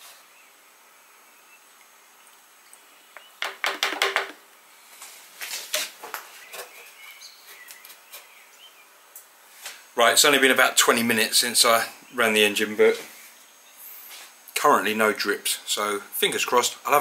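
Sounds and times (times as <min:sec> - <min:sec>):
hard plastic clattering: 0:03.4 - 0:04.4.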